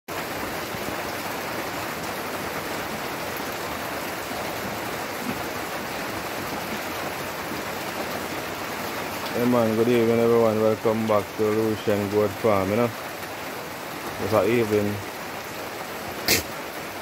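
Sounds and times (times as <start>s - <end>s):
steady hiss: 16.2s - 16.6s.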